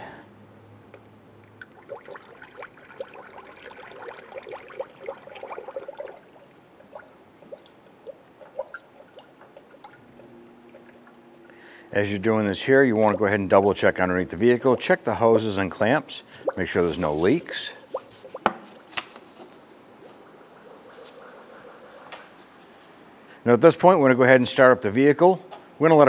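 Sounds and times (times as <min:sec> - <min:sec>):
coolant splashing and gurgling: 0:01.4 - 0:11.7, 0:16.4 - 0:18.9
liquid dripping: 0:01.4 - 0:11.7, 0:17.8 - 0:23.1.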